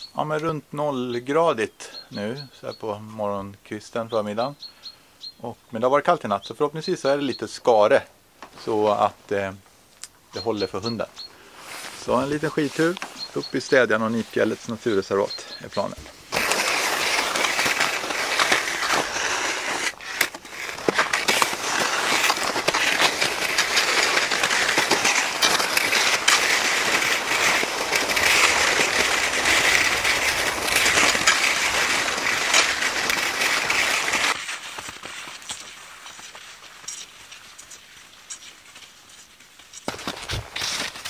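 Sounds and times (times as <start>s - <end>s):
clicks from skis and poles: 10.0s - 41.0s
skis scraping over crusty snow: 10.4s - 41.0s.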